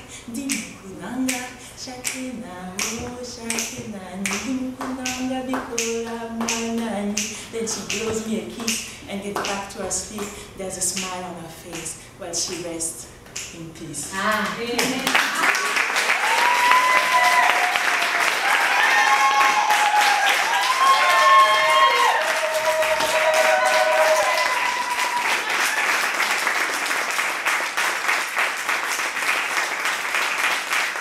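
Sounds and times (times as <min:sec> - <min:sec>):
audience applauding: 0:14.8 - 0:31.0
high voices cheering: 0:15.4 - 0:26.3.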